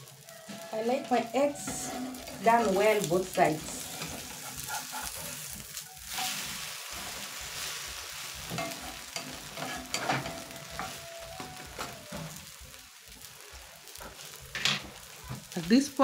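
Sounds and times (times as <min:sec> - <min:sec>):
omelette sizzling in frying pan: 0:00.0 - 0:16.0.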